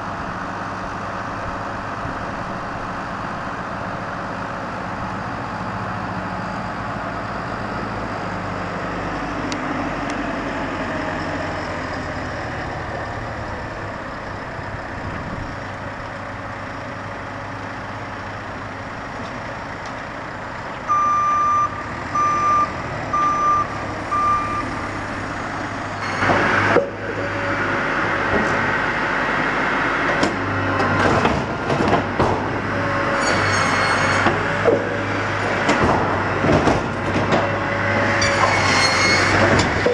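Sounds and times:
diesel engine running: 0.0 - 39.9
reversing alarm beeps: 20.9 - 24.8.

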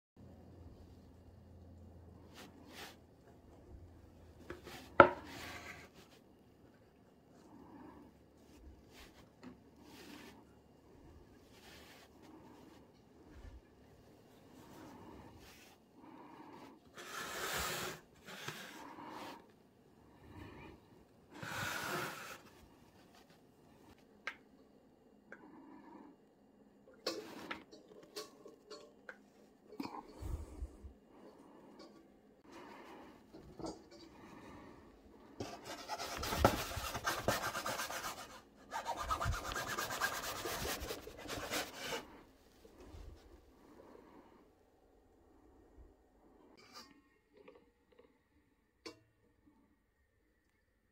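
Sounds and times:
person breathing: 14.5 - 22.7, 29.8 - 37.0.

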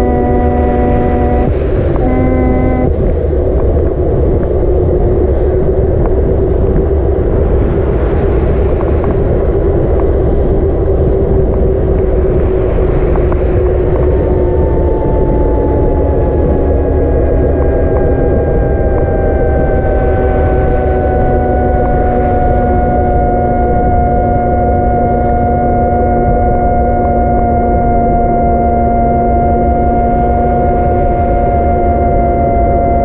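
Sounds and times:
thin whine falling in pitch: 0.0 - 3.2, 13.6 - 33.0
steady hum: 0.0 - 33.0
wind buffeting microphone: 0.0 - 33.0.

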